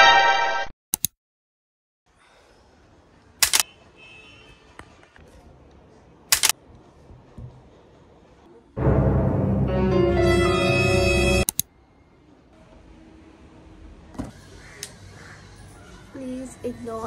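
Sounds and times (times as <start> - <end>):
sharp double clicks: 3.4 - 3.6, 6.3 - 6.6.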